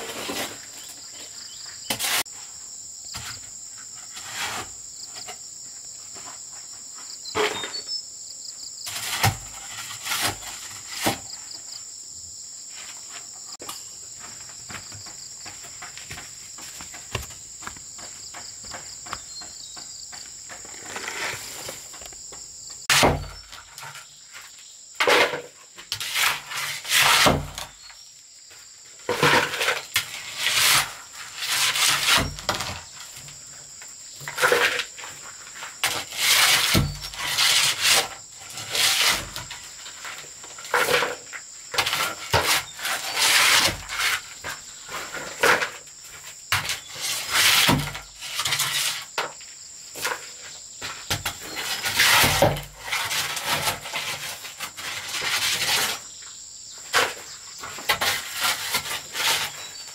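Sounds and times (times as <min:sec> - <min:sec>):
shovel scraping soil: 0:00.0 - 0:02.6, 0:03.2 - 0:05.4, 0:07.3 - 0:08.0, 0:08.8 - 0:11.5, 0:20.5 - 0:22.1, 0:22.8 - 0:28.0, 0:29.0 - 0:33.4, 0:34.2 - 0:56.2, 0:56.9 - 0:59.9
insects droning: 0:00.0 - 0:59.9.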